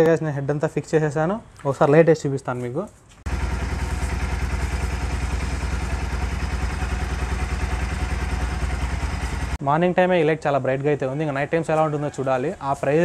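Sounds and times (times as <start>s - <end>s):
motorcycle engine idling: 3.3s - 9.6s.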